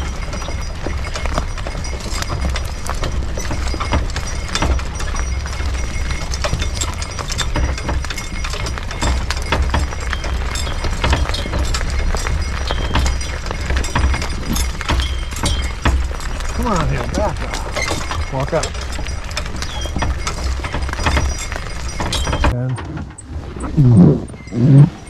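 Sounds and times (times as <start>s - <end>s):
hoof clops: 0.0s - 25.0s
wooden rattling clacks: 0.0s - 25.0s.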